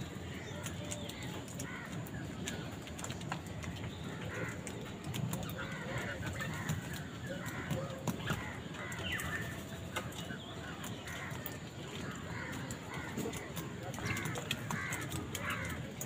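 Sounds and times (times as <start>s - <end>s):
crows cawing: 1.6s - 2.0s, 4.2s - 4.6s, 5.6s - 9.6s, 11.0s - 15.9s.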